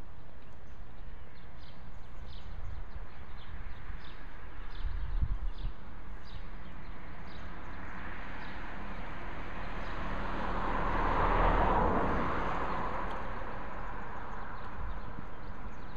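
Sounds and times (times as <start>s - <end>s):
birds chirping: 0.0s - 15.9s
vehicle passing: 6.6s - 15.8s.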